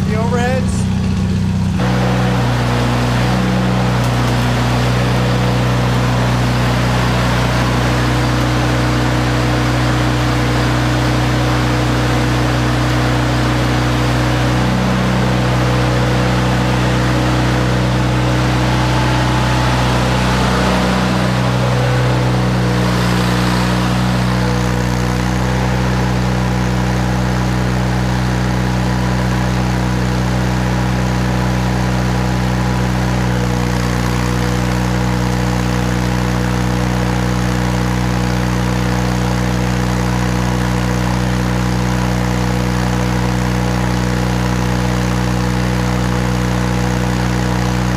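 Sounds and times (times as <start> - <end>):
welder engine running: 0.0 - 47.9.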